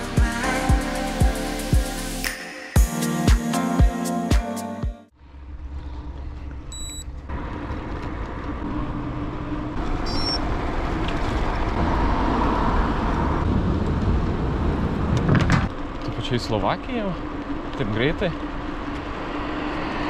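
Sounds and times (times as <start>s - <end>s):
bike tyre noise on road: 5.2s - 20.0s
wind rumble on microphone: 7.7s - 16.4s.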